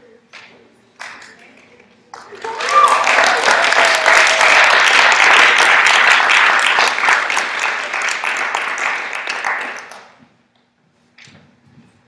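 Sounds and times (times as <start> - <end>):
audience applause: 2.1 - 10.2.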